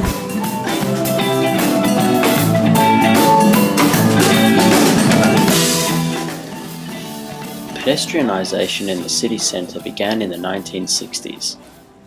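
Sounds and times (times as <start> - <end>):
drum kit beat: 0.0 - 10.6
guitar: 0.0 - 12.0
xylophones playing: 0.5 - 8.2.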